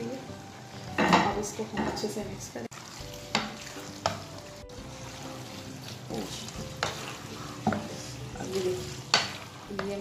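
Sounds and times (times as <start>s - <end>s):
low sizzle: 0.0s - 10.0s
spatula stirring pasta in sauce: 2.7s - 10.0s
spatula scraping and knocking pan: 2.8s - 10.0s.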